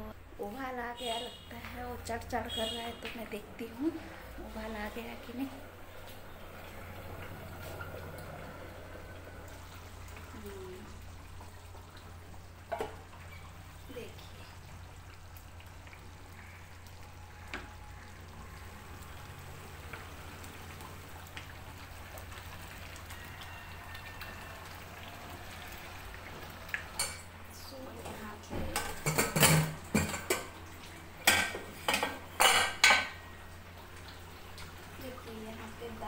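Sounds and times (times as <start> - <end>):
curry simmering in a frying pan: 0.3 - 36.0
steel pots and lids clattering: 12.7 - 13.5, 26.9 - 27.3, 28.1 - 30.6, 31.2 - 33.3.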